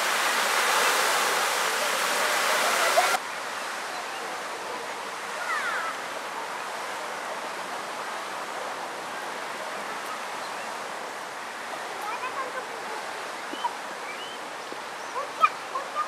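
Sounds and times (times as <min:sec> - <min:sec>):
fountain water rushing: 0:00.0 - 0:16.0
open-air hiss: 0:00.0 - 0:16.0
faint bird chirps: 0:13.4 - 0:16.0.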